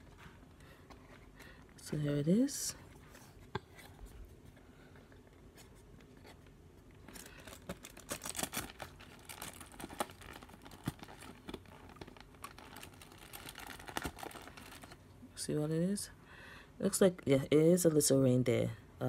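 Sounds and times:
cardboard and plastic tray crinkling: 7.0s - 15.0s.

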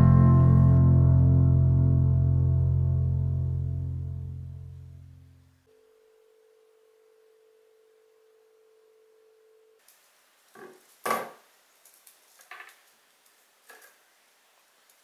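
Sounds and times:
wire rustling: 11.8s - 14.2s.

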